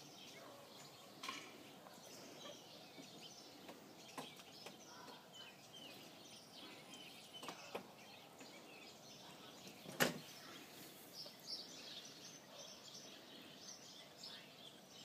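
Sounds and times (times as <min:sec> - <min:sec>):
birds chirping: 0:00.0 - 0:15.0.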